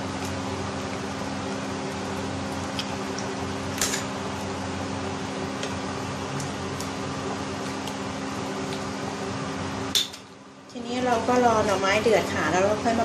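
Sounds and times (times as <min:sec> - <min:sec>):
mechanical hum: 0:00.0 - 0:13.0.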